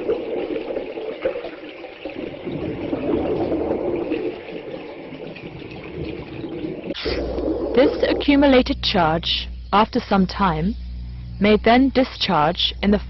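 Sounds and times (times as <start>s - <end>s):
liquid rushing through a pipe: 0.0s - 8.5s.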